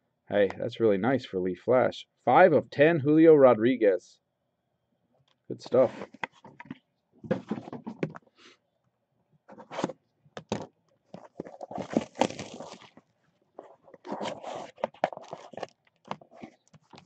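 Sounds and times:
cardboard scraping and tearing: 9.5s - 10.0s, 11.1s - 17.0s.

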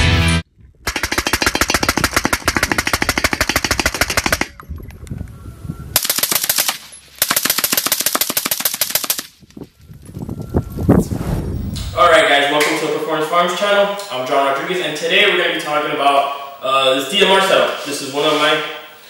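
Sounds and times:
rifle firing rapid strings of shots: 0.9s - 4.5s, 6.0s - 9.3s.

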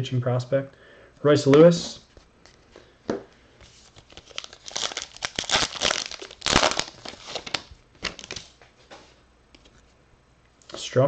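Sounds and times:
foil wrapper tearing and crinkling: 3.9s - 8.5s.

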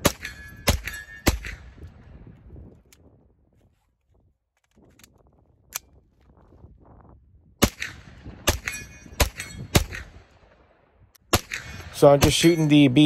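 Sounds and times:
gunshots: 0.0s - 1.8s, 7.6s - 10.3s, 11.3s - 12.8s.

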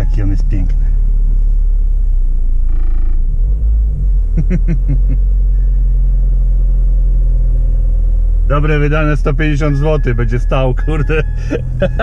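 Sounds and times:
low rumble in car cabin: 0.0s - 12.0s
short squeaky tone: 9.6s - 12.0s.

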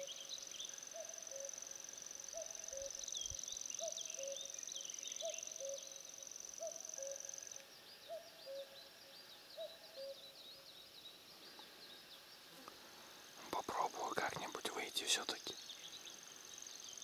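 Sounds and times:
high-pitched insect whine: 0.0s - 17.0s
birds chirping: 2.3s - 17.0s.

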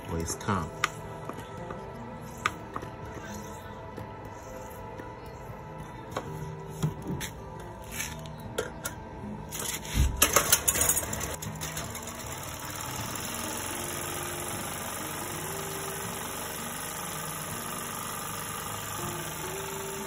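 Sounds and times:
generator engine running: 10.3s - 20.0s.

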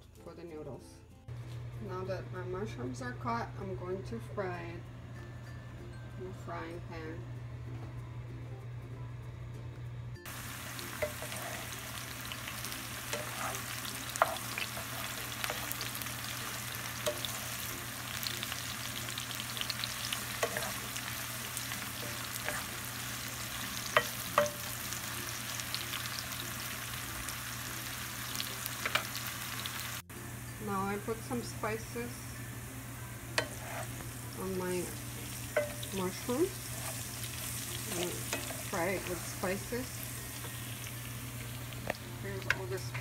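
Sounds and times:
mushrooms sizzling in oil: 10.2s - 43.0s.

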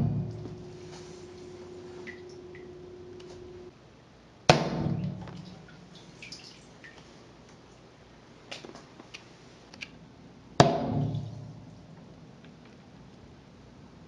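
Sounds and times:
rumble: 0.0s - 3.7s.

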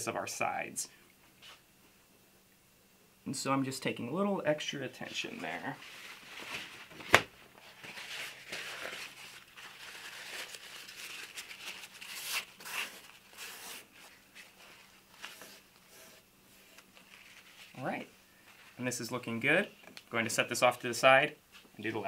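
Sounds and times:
paper towel crinkling: 5.1s - 18.9s.

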